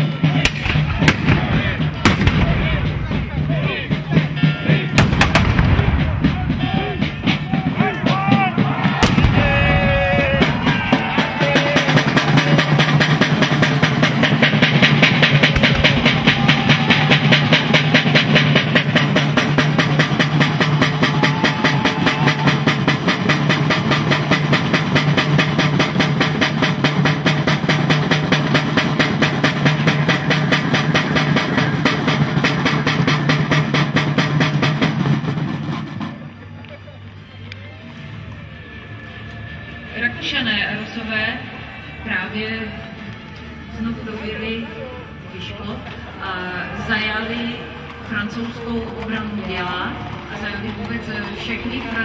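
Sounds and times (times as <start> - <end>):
military drums rolling: 0.0 - 36.5
people shouting: 0.3 - 13.1, 15.1 - 18.7, 20.4 - 23.2
bang: 9.0 - 10.8, 15.0 - 18.4.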